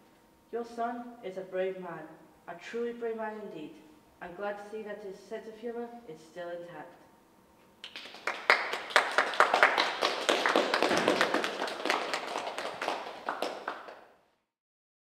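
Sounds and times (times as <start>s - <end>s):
people clapping: 7.8s - 14.2s.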